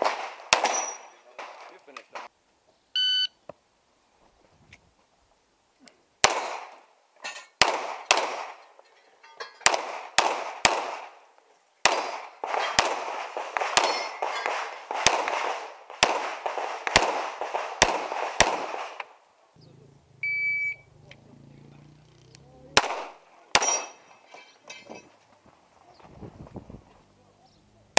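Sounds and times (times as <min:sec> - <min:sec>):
pistol shots: 0:00.0 - 0:02.3, 0:06.2 - 0:06.8, 0:07.6 - 0:08.6, 0:09.6 - 0:11.2, 0:11.8 - 0:19.1, 0:22.7 - 0:24.1.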